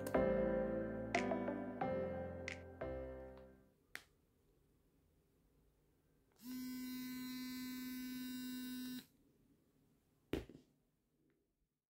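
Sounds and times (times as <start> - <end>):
electric toothbrush buzzing: 6.4 - 9.1.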